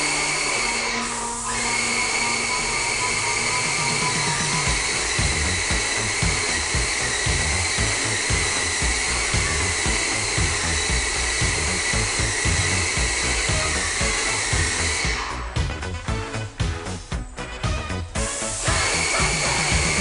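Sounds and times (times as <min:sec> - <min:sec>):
paint spray gun air hiss: 0:00.0 - 0:15.6, 0:18.0 - 0:20.0
pulsing low rumble: 0:04.0 - 0:20.0.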